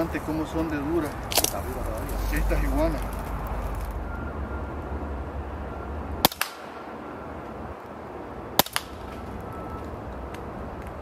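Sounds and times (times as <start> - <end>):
air rifle shots: 6.2 - 6.9.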